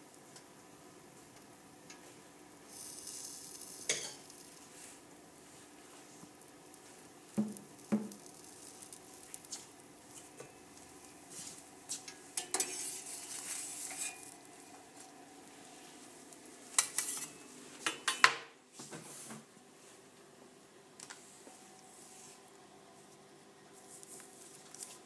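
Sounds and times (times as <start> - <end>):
toaster humming: 0.0 - 18.3.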